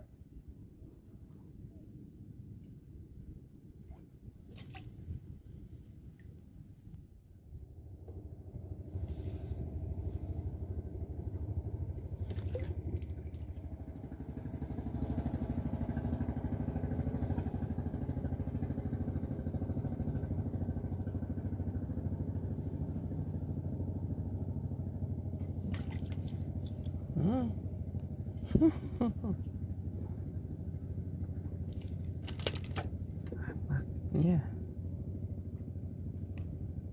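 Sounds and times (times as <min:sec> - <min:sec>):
small engine running: 0:08.2 - 0:28.7.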